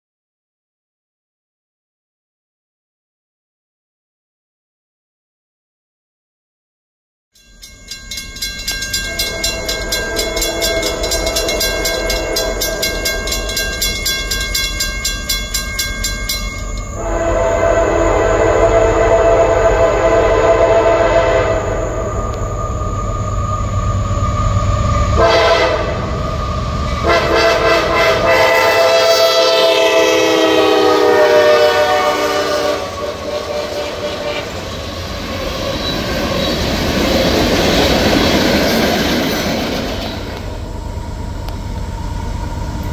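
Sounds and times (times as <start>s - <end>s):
fast even ringing: 7.4s - 17.0s
locomotive air horn blasts: 9.1s - 12.9s, 16.9s - 22.1s, 25.1s - 26.2s, 27.0s - 34.6s.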